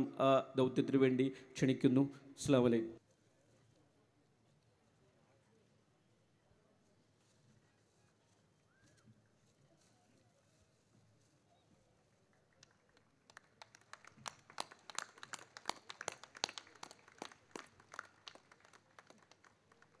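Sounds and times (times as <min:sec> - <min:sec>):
people clapping: 0:11.9 - 0:20.0.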